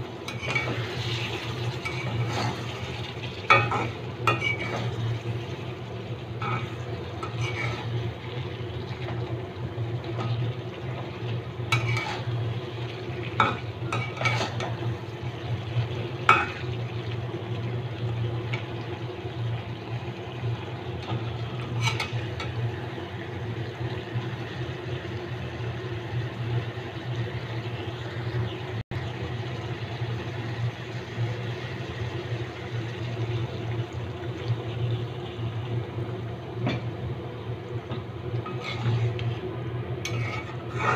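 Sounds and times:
curry frying in a pan: 0:00.0 - 0:40.9
metal spatula scraping pan: 0:00.3 - 0:05.0, 0:06.4 - 0:08.1, 0:11.7 - 0:12.4, 0:13.4 - 0:14.7, 0:21.7 - 0:22.2, 0:38.4 - 0:39.3, 0:40.0 - 0:40.9.

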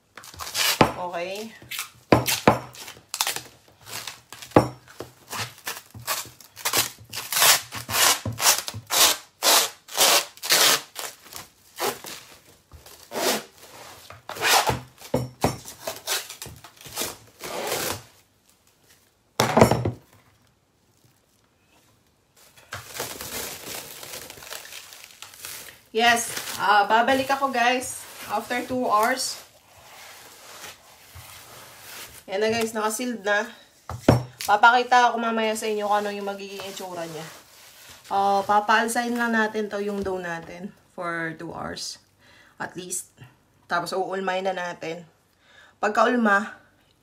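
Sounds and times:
cling film crinkling: 0:20.4 - 0:32.3.

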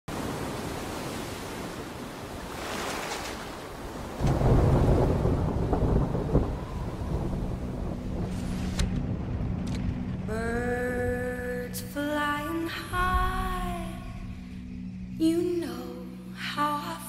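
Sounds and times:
rain-like hiss: 0:00.1 - 0:10.3
deep rumble of thunder: 0:04.2 - 0:11.3.

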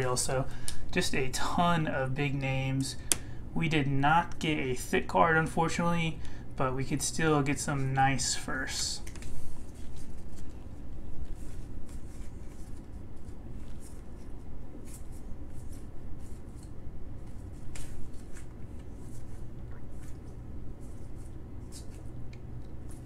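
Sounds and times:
low steady hum: 0:00.0 - 0:23.0
cards swishing and flicking: 0:09.0 - 0:19.4, 0:20.0 - 0:22.1.

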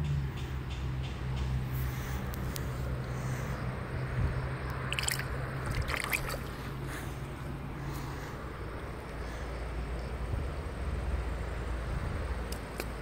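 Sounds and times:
water sloshing and splashing: 0:04.6 - 0:07.1.

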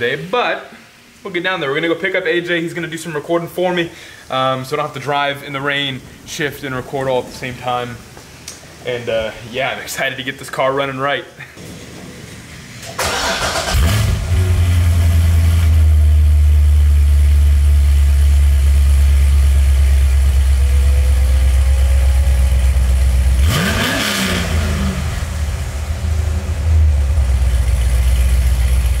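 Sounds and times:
car engine starting and idling: 0:11.6 - 0:29.0.

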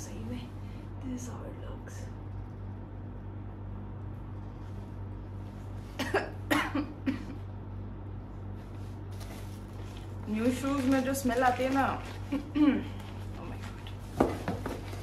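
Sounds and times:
low background hum: 0:00.0 - 0:15.0
person coughing: 0:06.0 - 0:07.4, 0:12.5 - 0:12.9.

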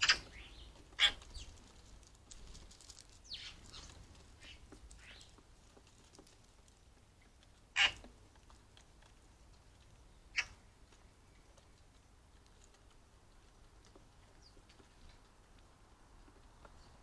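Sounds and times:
birds pecking seed on wood: 0:00.0 - 0:17.0
short harsh bird sounds: 0:10.3 - 0:10.6.

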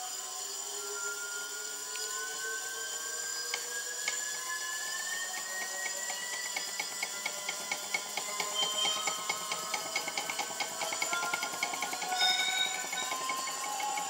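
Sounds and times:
electric motor whine: 0:00.0 - 0:14.0
rhythmic ticking: 0:05.4 - 0:14.0.

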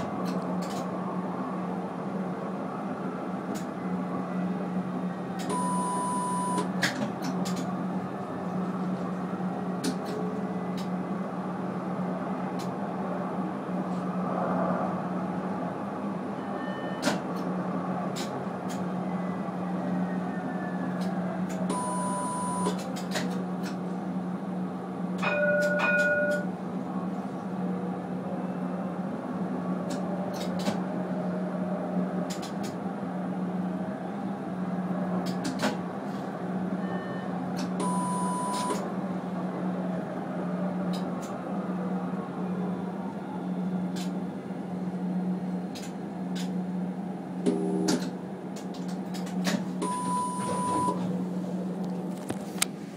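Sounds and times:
tram running along track: 0:00.0 - 0:52.9
short electronic beeps: 0:05.5 - 0:06.7, 0:21.7 - 0:22.8, 0:37.8 - 0:38.8, 0:49.8 - 0:51.0.

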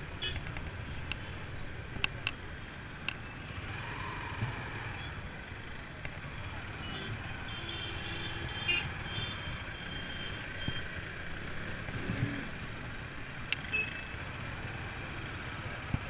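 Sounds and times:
motorcycle engine and road noise: 0:00.0 - 0:16.0.

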